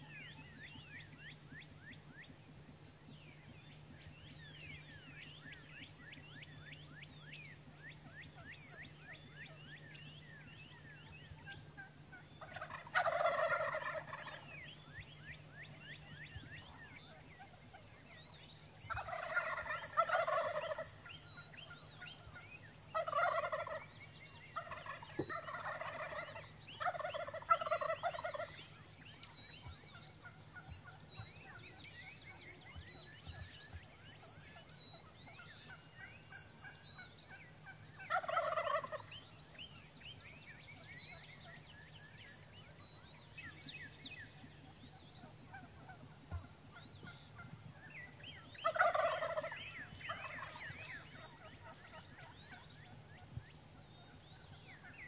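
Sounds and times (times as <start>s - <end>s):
turkeys gobbling: 12.2s - 14.7s, 18.9s - 39.3s, 44.2s - 53.3s.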